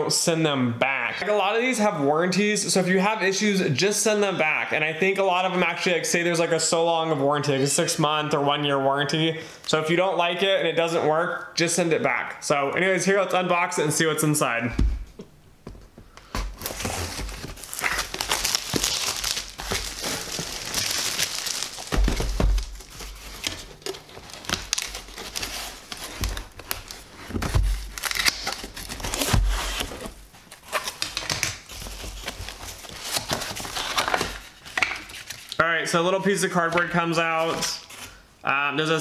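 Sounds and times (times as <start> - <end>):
packaging rustling and crinkling: 15.7 - 35.6
knife slitting packing tape: 27.9 - 30.0.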